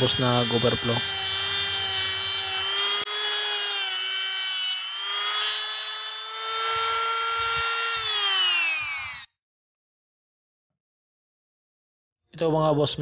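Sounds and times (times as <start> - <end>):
rotary tool grinding metal: 0.0 - 9.3.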